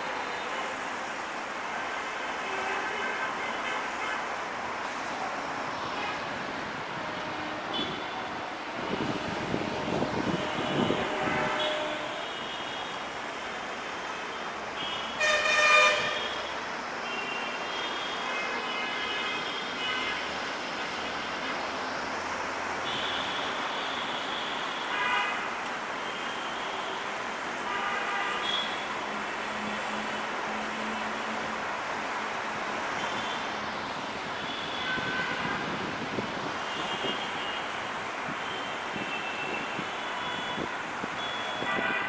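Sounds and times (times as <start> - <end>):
traffic hum: 0.0 - 42.0
vehicle horns honking: 7.5 - 8.2, 9.8 - 12.9, 14.8 - 16.4, 34.4 - 35.8, 38.4 - 42.0.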